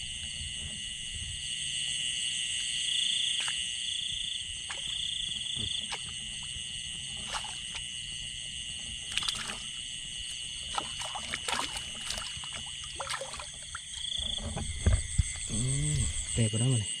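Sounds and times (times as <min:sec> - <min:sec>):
frogs croaking: 0:00.0 - 0:17.0
insects chirping: 0:00.0 - 0:17.0
shallow water splashing: 0:03.2 - 0:16.4.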